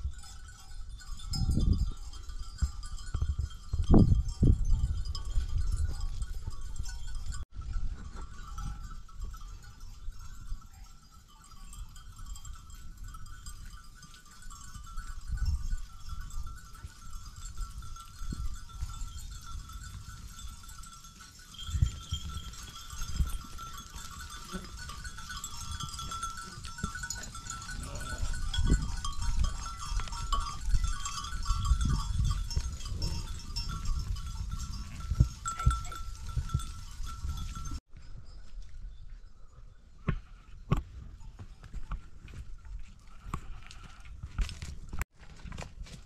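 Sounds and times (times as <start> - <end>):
wind rumbling on microphone: 0.0 - 10.8, 11.6 - 45.0
sheep and goats bleating: 10.7 - 32.0, 43.0 - 44.1.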